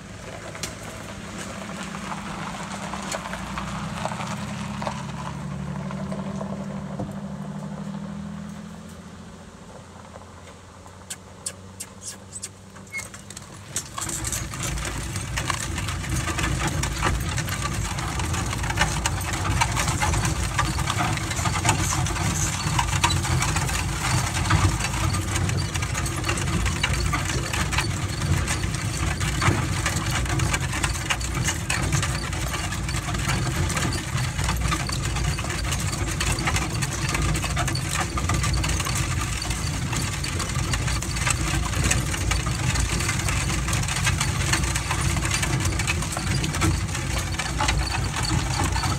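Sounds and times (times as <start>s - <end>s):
hooves and wheels crunching gravel: 0.0s - 9.0s, 9.9s - 48.9s
cart rumbling and rattling: 0.0s - 48.9s
chains and harness clinking: 12.0s - 48.9s.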